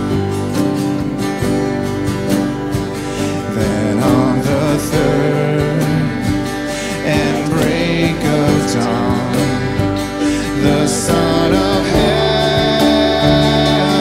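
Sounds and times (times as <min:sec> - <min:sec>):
acoustic guitar strumming: 0:00.0 - 0:14.0
band playing a slow hymn: 0:00.0 - 0:14.0
voices singing: 0:03.2 - 0:14.0.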